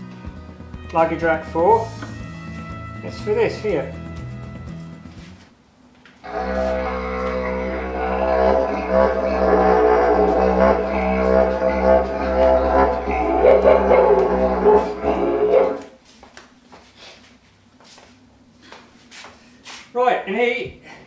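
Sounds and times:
didgeridoo drone: 6.2 - 16.0.

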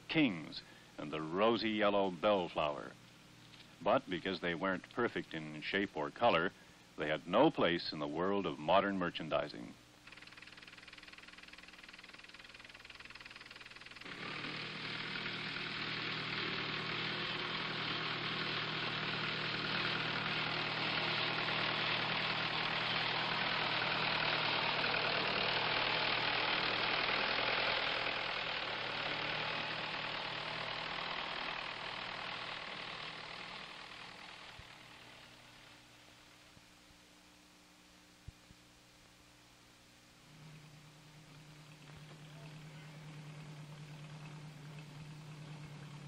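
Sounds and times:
machine engine running: 10.0 - 36.3, 40.2 - 46.0.

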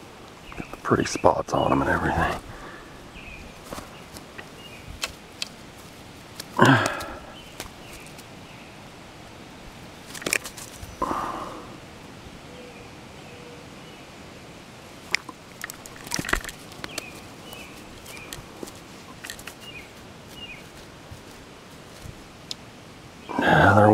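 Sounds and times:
fish flopping on grass: 3.6 - 8.4, 10.0 - 11.0, 15.0 - 22.3
forceps clicking: 3.7 - 5.6, 6.3 - 8.3, 10.1 - 10.8, 15.0 - 19.8.

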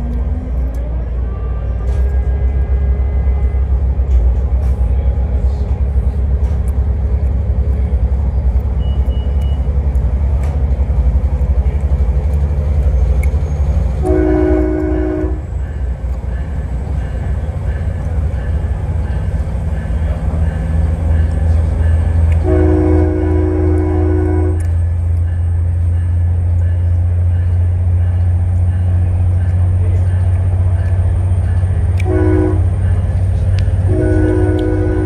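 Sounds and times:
train rumbling: 0.0 - 35.0
train horn: 14.0 - 15.5, 22.4 - 24.8, 32.0 - 32.7, 33.8 - 35.0.

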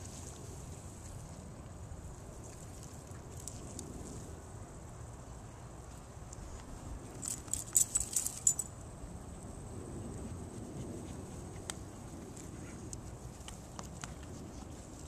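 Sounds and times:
dog collar jingling: 7.2 - 8.7.

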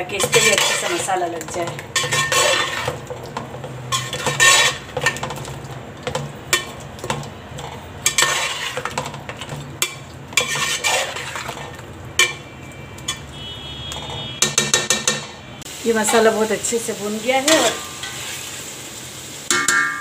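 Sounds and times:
metal spatula scraping pot: 0.0 - 15.4, 17.4 - 18.6.

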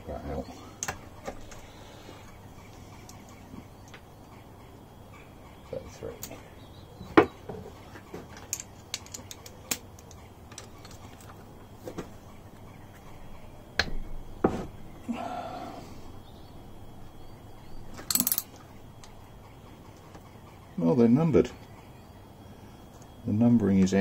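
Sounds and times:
metallic tool clicks and clinks: 18.1 - 18.5.

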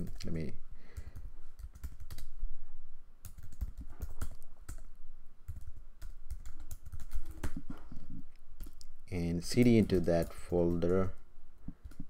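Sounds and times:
typing on a keyboard: 1.0 - 2.3, 3.2 - 4.9, 5.5 - 7.6, 11.8 - 12.0.

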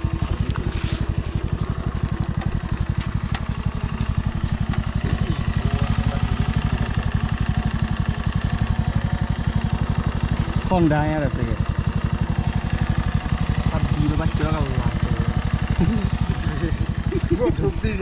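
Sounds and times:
small engine puttering: 0.0 - 18.0.

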